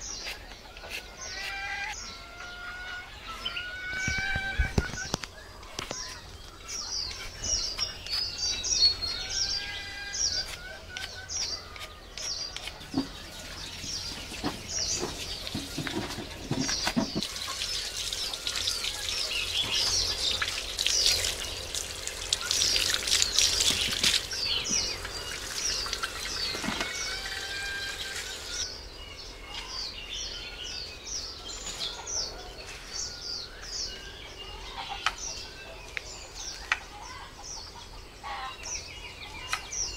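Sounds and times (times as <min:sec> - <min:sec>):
small birds chirping: 0:00.0 - 0:39.9
tap water splashing: 0:20.4 - 0:26.9.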